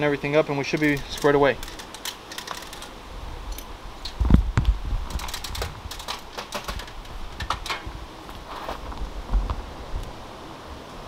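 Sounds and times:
clicks and knocks: 5.1s - 7.9s.

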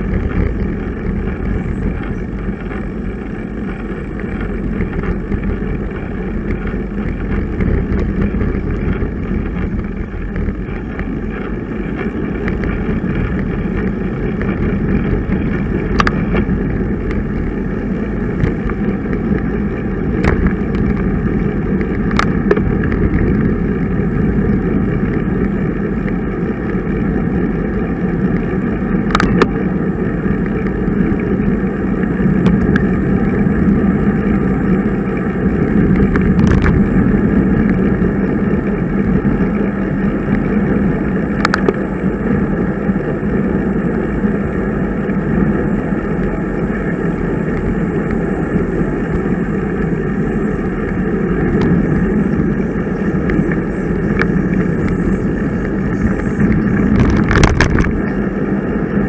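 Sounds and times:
bicycle road noise: 0.0s - 59.0s
wind rushing: 47.2s - 59.0s.

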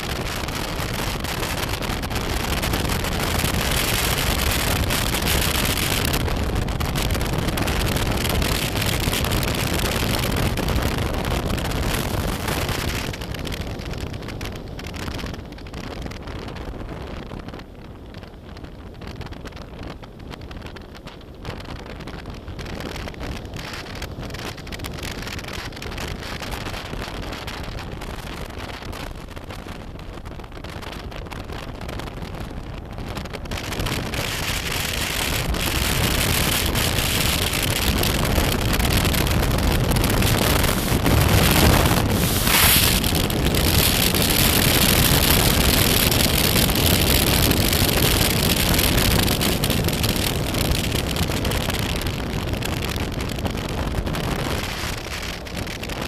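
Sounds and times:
road noise: 0.0s - 56.0s
wind rushing over microphone: 0.0s - 56.0s
motorcycle engine running: 35.5s - 48.8s.

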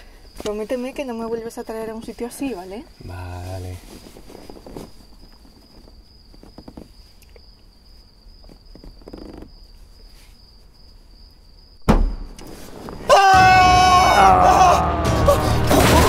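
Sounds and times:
cricket chirring: 0.0s - 13.1s
soft rustling: 0.2s - 11.2s
loud thump: 11.8s - 13.1s.

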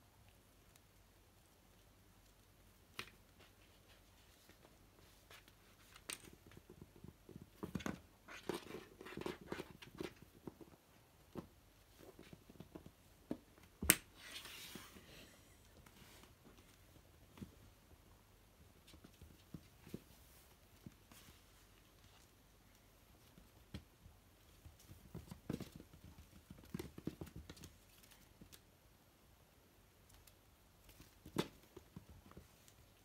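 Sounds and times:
kitten paws scrabbling on wood: 18.6s - 28.5s.

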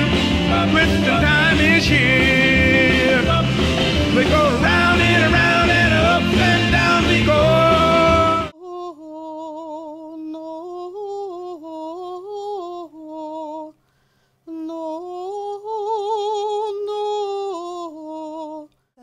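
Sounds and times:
woman humming: 8.6s - 13.7s.

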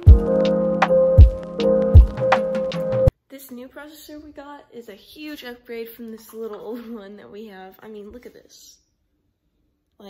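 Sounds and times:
kick drum hits: 0.0s - 0.3s, 1.2s - 2.4s
synth chords over a beat: 0.0s - 3.1s.

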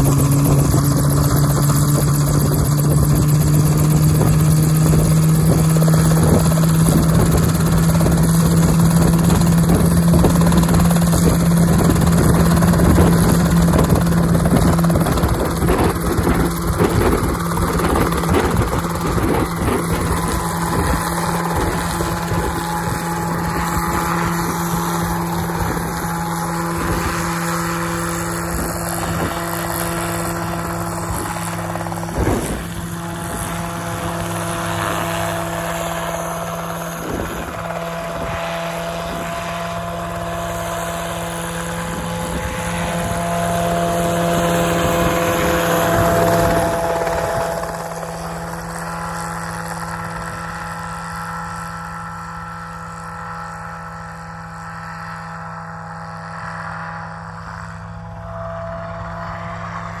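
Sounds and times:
helicopter engine and rotor: 0.0s - 60.0s.

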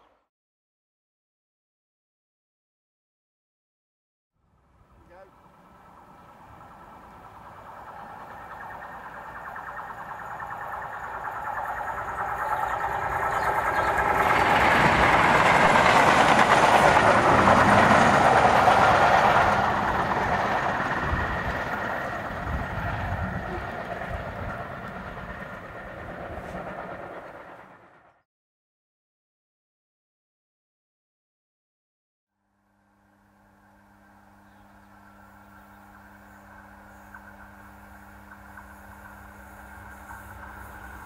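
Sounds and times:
diesel locomotive engine drone: 4.4s - 28.2s, 32.5s - 41.0s
wheels on rails: 5.0s - 28.2s, 34.6s - 41.0s.

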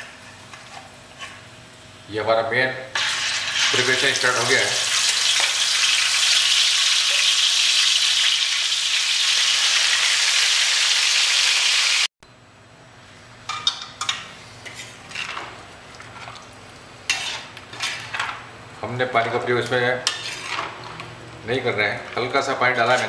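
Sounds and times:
chicken sizzling in hot oil: 3.0s - 12.1s
metal spatula scraping a pan: 14.6s - 15.4s, 17.1s - 18.4s, 20.0s - 21.0s, 22.2s - 23.0s.

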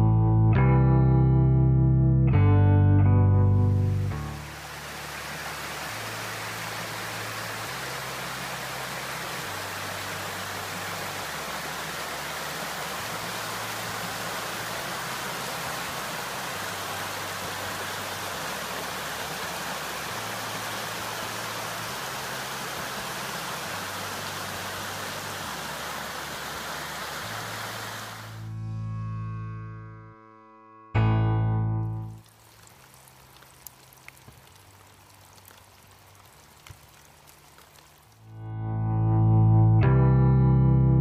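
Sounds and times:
stream rushing over rocks: 4.1s - 28.5s, 32.0s - 38.3s.

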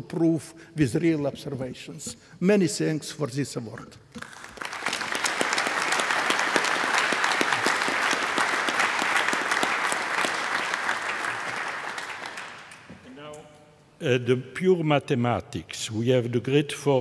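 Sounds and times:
audience clapping: 4.2s - 13.0s.

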